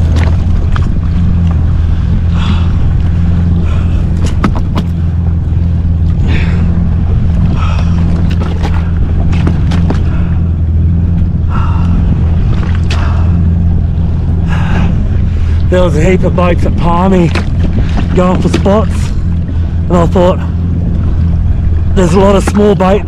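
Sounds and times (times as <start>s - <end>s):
fish thrashing and slapping: 0.0s - 1.0s, 4.1s - 5.0s, 7.5s - 10.2s, 17.2s - 19.0s
jet ski engine idling: 0.0s - 23.0s.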